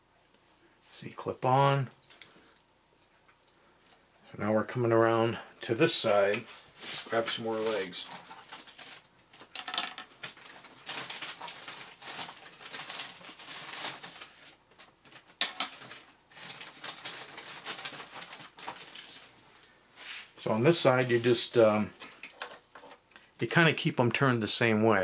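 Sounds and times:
plastic bag rustling: 6.6s - 9.5s, 10.1s - 19.5s
plastic parts clattering on wood: 9.4s - 10.5s, 22.0s - 23.0s.

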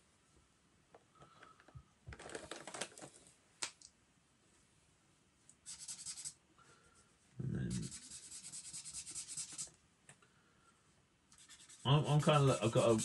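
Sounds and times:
plastic markers clattering: 1.3s - 3.9s
marker scratching on paper: 5.6s - 6.4s, 7.7s - 9.7s, 11.3s - 13.0s.

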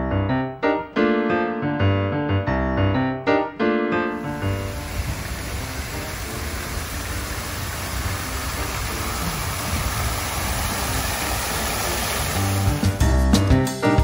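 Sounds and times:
water falling from water feature: 4.2s - 13.1s.

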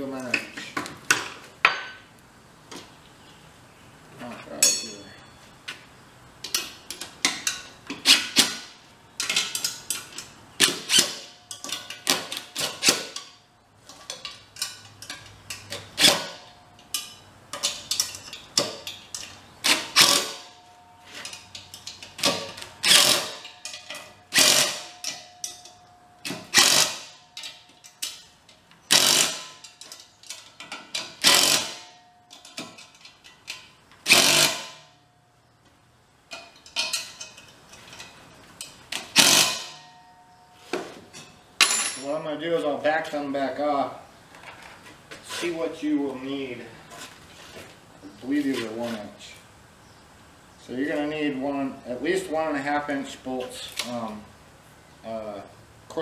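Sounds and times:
cordless drill bursts: 24.3s - 24.9s, 26.5s - 27.1s, 31.2s - 31.8s, 34.0s - 34.8s, 39.2s - 39.7s.

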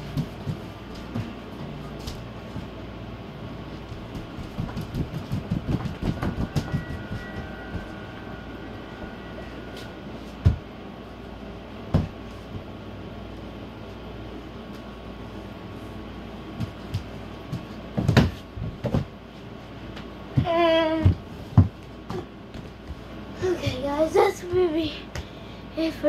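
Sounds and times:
footsteps on hard floor: 0.0s - 2.8s, 3.8s - 8.1s, 9.1s - 10.7s, 11.9s - 12.7s, 16.6s - 23.2s
steady low hum: 0.0s - 26.0s.

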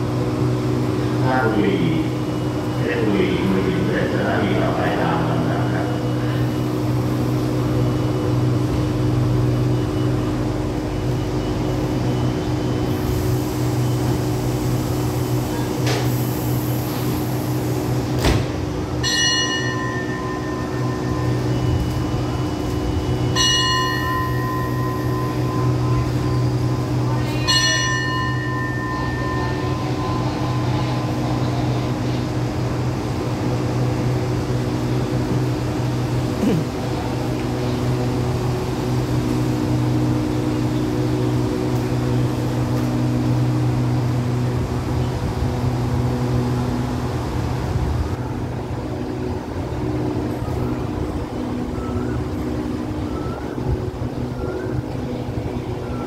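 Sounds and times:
station bell ringing: 0.0s - 15.8s, 18.7s - 36.1s, 37.0s - 45.2s
standing train hum: 0.0s - 56.0s.

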